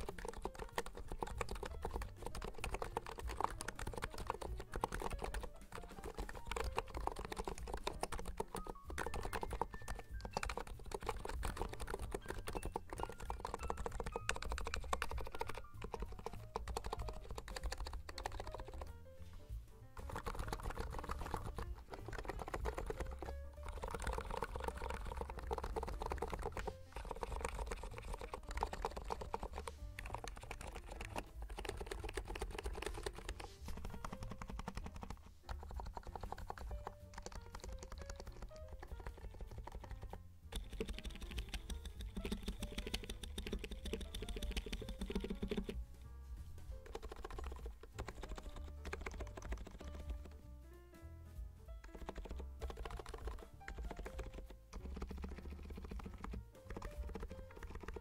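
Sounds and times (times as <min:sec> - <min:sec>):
fast keyboard typing: 0:00.0 - 0:50.6, 0:51.7 - 0:58.0
background music: 0:00.0 - 0:58.0.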